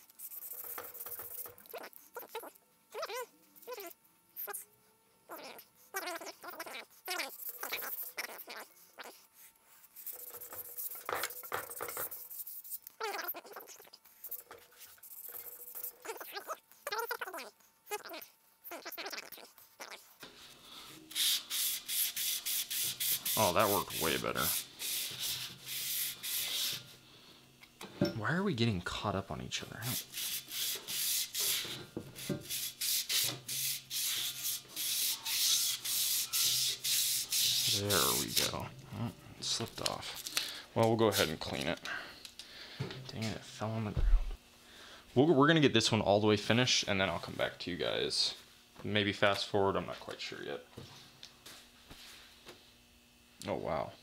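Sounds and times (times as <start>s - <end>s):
sandpaper scratching on metal: 0.0s - 2.4s, 6.4s - 9.2s, 9.9s - 16.5s, 21.1s - 26.9s, 29.8s - 38.5s.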